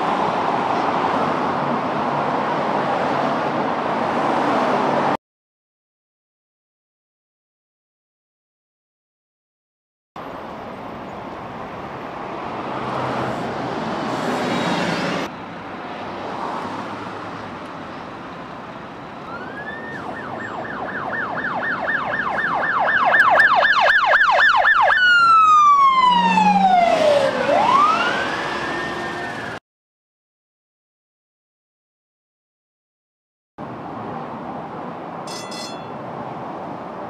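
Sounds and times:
passing traffic: 0.0 - 5.2, 10.2 - 29.6, 33.6 - 37.0
police car siren: 19.2 - 29.6.

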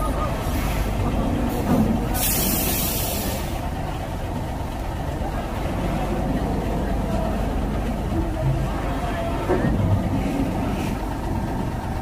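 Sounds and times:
truck diesel engine running: 0.0 - 12.0
air brakes hiss: 1.5 - 3.6.

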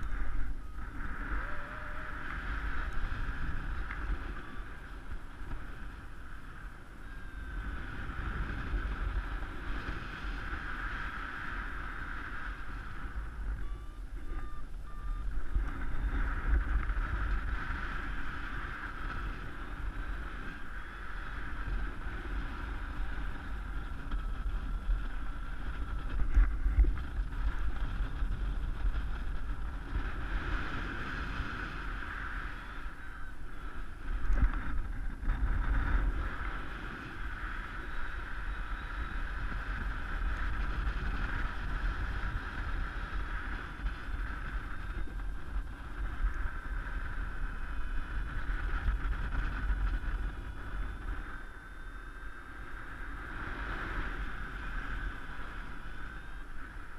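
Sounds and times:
steady whistle: 0.0 - 8.4, 13.0 - 16.6, 31.5 - 34.0, 37.1 - 40.8
wind rumbling on microphone: 0.0 - 56.9.

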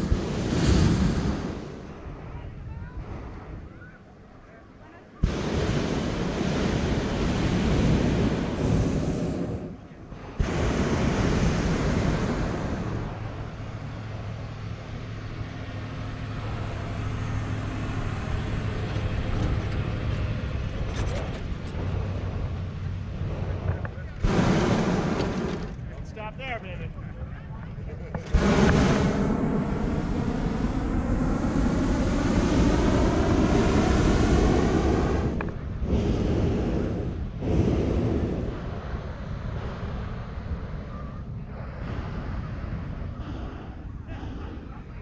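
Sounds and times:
propane burner blast: 5.2 - 20.7, 23.2 - 25.8, 28.2 - 45.0
vehicle engine and road hum: 12.4 - 45.0.

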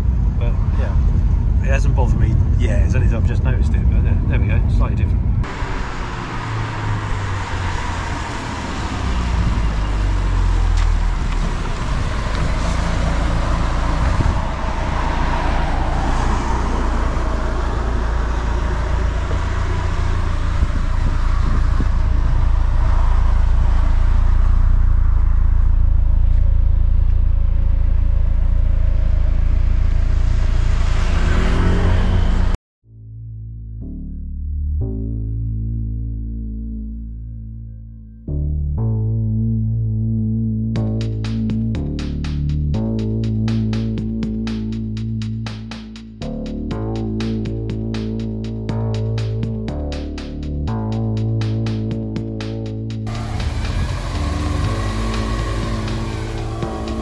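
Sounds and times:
car engine rumbling: 0.0 - 32.6, 38.8 - 57.0
tyres on wet road: 5.4 - 32.6, 51.4 - 57.0.

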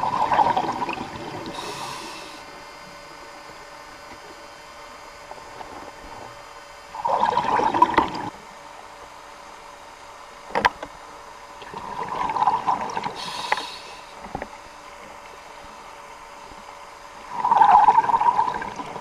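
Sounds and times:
exhaled bubbles underwater: 0.0 - 2.0, 6.9 - 8.4, 11.6 - 13.6, 17.3 - 19.0
regulator hiss: 0.7 - 4.0, 12.7 - 14.8.

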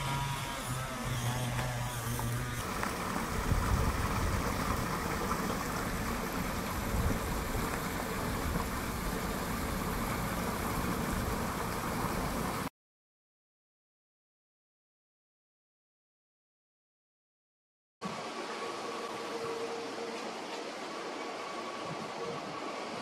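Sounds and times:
electric train rumbling: 2.5 - 12.6.

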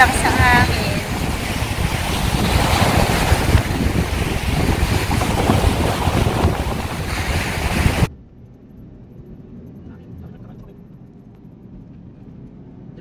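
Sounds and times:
waves breaking on shore: 0.0 - 8.1
wind buffeting microphone: 0.0 - 13.0.

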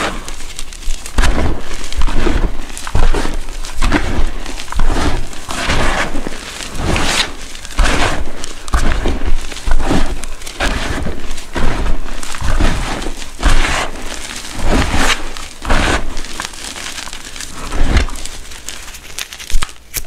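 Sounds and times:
chalk powder crunching: 0.0 - 20.0.

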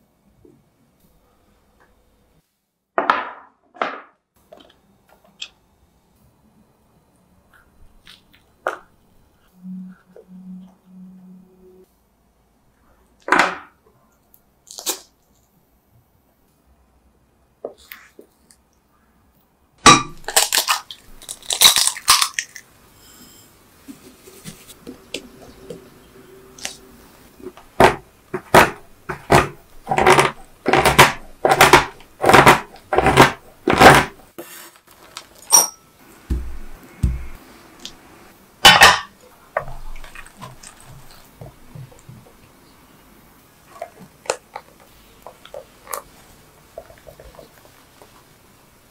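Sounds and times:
crunchy clicks and knocks: 27.5 - 34.2
knife chopping chocolate: 27.8 - 34.2, 36.3 - 37.4.

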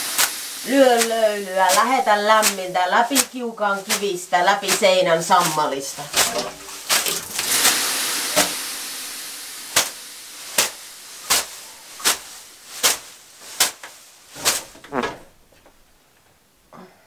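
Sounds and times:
steam hissing off stove: 0.0 - 3.2, 5.4 - 14.9
leafy whisk slapping skin: 0.0 - 7.8, 9.7 - 15.0.

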